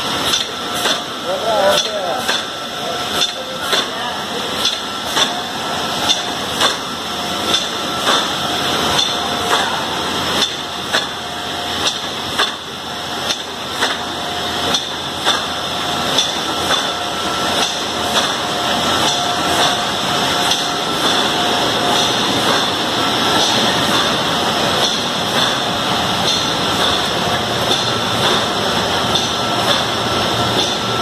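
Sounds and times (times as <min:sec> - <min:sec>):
machine hum: 0:00.0 - 0:31.0
sharp mechanical knocks: 0:06.0 - 0:06.9, 0:07.5 - 0:08.3, 0:10.4 - 0:11.2, 0:11.8 - 0:12.6, 0:13.2 - 0:14.1, 0:14.7 - 0:17.0, 0:17.6 - 0:31.0.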